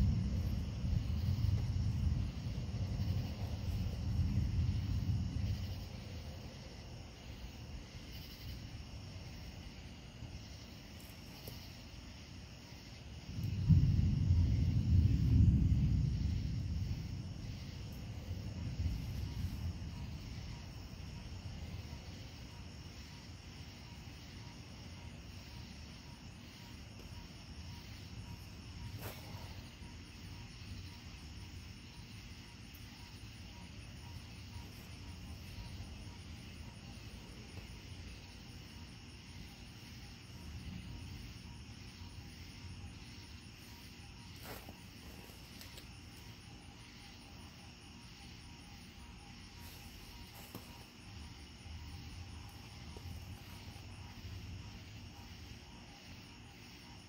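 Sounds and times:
rolling thunder: 0.0 - 6.6, 13.1 - 21.8
crickets chirring: 0.0 - 57.0.

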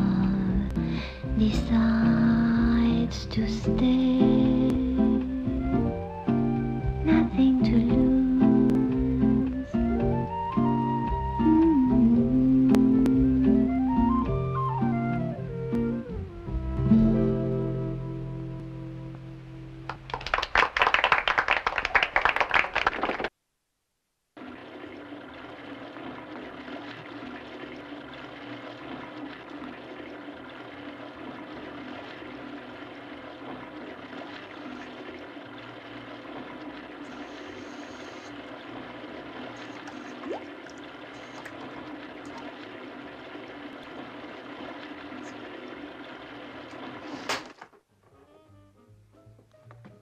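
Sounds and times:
toilet cistern water running: 0.0 - 16.7, 24.4 - 47.3
loud clapping: 19.9 - 23.3.

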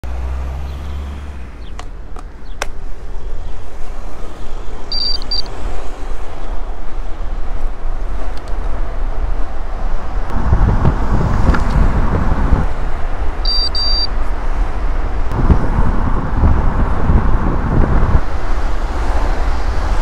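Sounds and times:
low engine hum: 0.0 - 20.0
bike tyre noise on tarmac: 0.1 - 20.0
wind rushing over microphone: 0.2 - 20.0
high electronic double beep: 4.9 - 5.5, 13.5 - 14.1.

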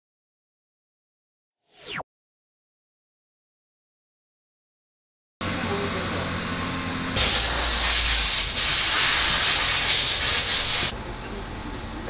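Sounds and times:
loud steady hiss: 7.2 - 10.9.

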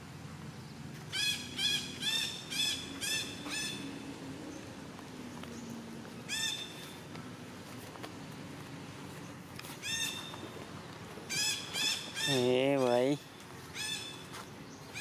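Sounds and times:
animal calling: 11.3 - 13.2.

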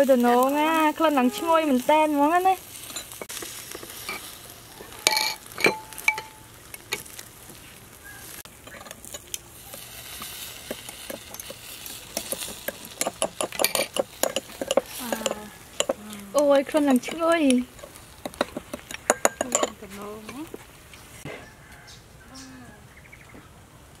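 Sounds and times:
metal spoon clinking on bowls: 2.9 - 3.3, 5.0 - 7.0, 10.7 - 19.9.

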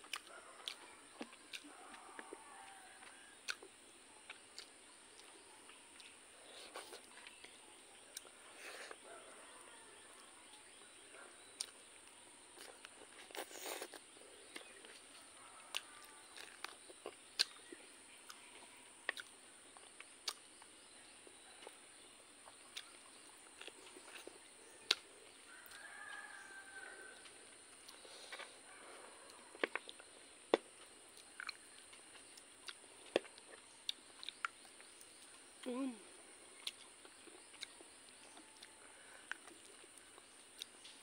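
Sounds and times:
person chewing with mouth clicks: 0.0 - 2.3, 3.0 - 9.1, 11.5 - 11.8, 12.5 - 15.1, 15.7 - 20.7, 22.4 - 26.5, 27.2 - 28.5, 29.3 - 35.8, 36.6 - 41.0.

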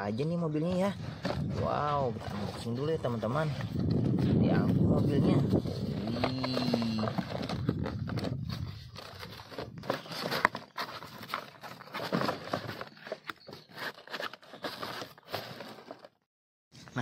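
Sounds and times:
cardboard box flaps rustling: 5.4 - 16.1.

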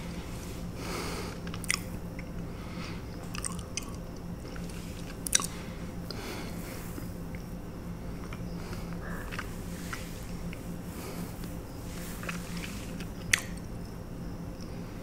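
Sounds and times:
chewing with lip smacks: 1.4 - 2.4, 3.2 - 6.2, 12.2 - 13.7.

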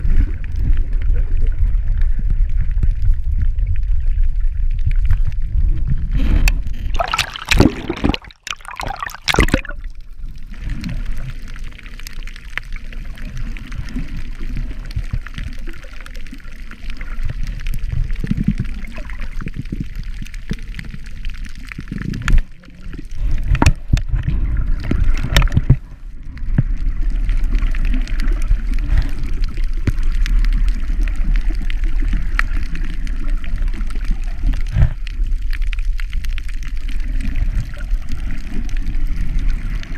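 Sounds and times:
fine crackle: 0.0 - 8.5, 9.6 - 39.9
gurgling sloshing water: 0.0 - 39.9
underwater rumble of moving water: 0.0 - 39.9.

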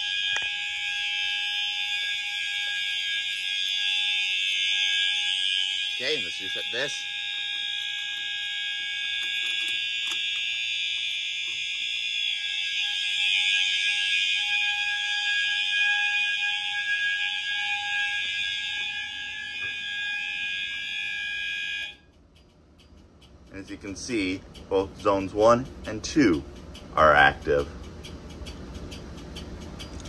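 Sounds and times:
fire alarm tone: 0.0 - 22.1.

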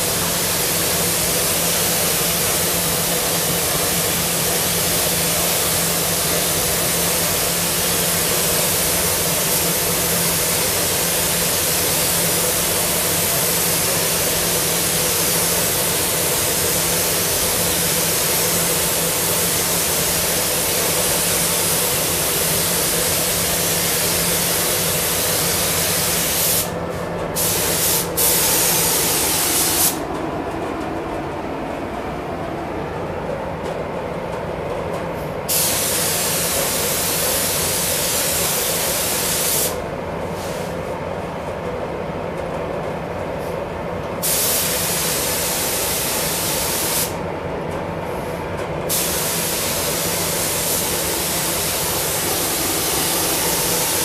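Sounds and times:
paint spray gun hissing: 0.0 - 26.7, 27.4 - 30.0, 35.5 - 39.8, 44.2 - 47.2, 48.9 - 54.0
ventilation hum: 0.0 - 54.0.

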